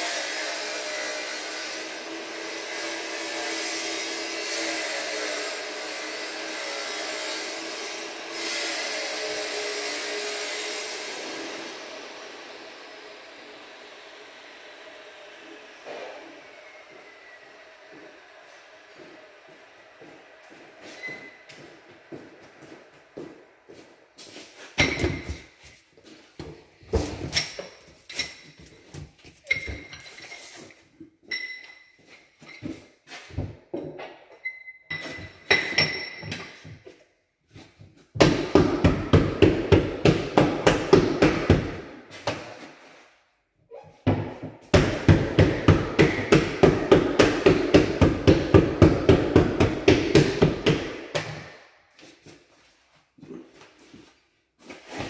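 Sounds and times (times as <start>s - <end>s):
quick regular tool strikes: 44.8s - 51.6s.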